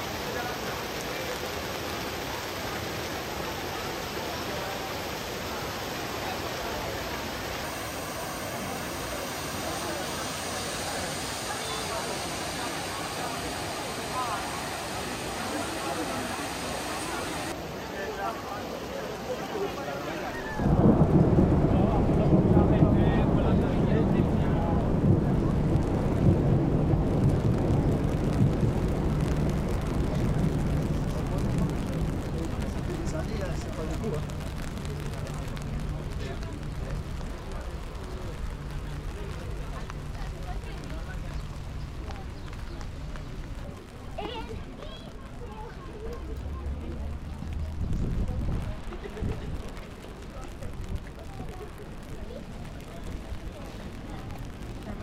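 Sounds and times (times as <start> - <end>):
fountain water rushing: 0.0 - 55.0
rain on street: 0.0 - 55.0
wind buffeting microphone: 20.5 - 45.4, 47.2 - 55.0.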